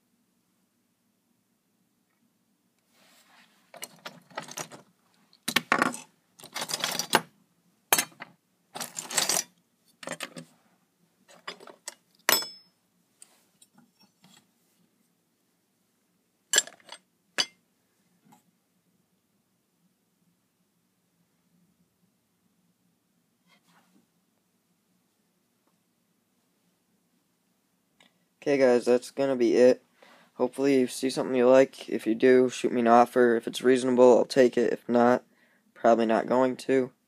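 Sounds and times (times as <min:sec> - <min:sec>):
model parts clattering: 0:03.6 - 0:07.3, 0:07.9 - 0:10.5, 0:11.3 - 0:12.7, 0:16.5 - 0:17.6.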